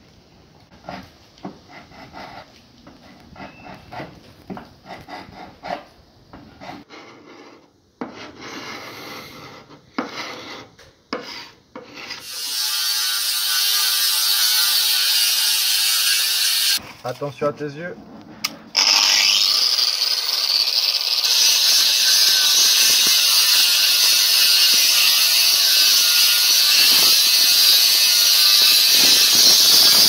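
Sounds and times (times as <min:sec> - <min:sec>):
power grinder grinding metal: 0:12.2 - 0:16.8, 0:18.8 - 0:30.0.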